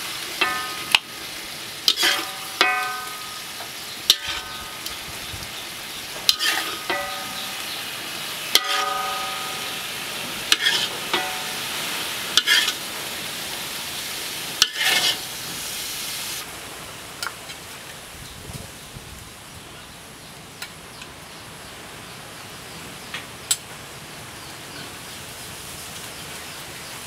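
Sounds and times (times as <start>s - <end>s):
frying sizzle: 0.0s - 27.0s
metal ladle scraping wok: 0.3s - 1.1s, 1.8s - 5.0s, 6.0s - 12.9s, 14.6s - 15.4s
sharp metallic knocks: 0.4s - 1.1s, 2.0s - 3.4s, 6.3s - 7.7s, 8.5s - 9.9s, 10.5s - 11.7s.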